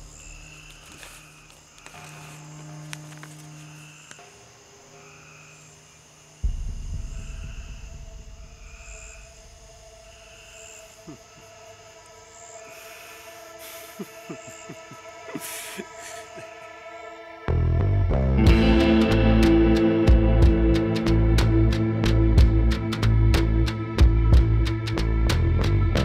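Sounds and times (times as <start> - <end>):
night insects chirping: 0.0 - 26.0
ominous film score drone: 0.0 - 26.0
soft low thumps: 6.4 - 10.5
deep low boom: 6.4 - 11.2.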